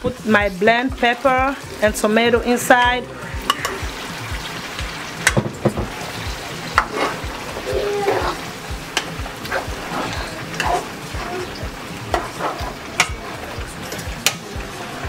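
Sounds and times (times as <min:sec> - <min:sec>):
wet sizzling in pot: 0:00.0 - 0:15.0
spoon tapping metal pot: 0:03.4 - 0:03.9, 0:06.7 - 0:07.0, 0:12.1 - 0:14.5.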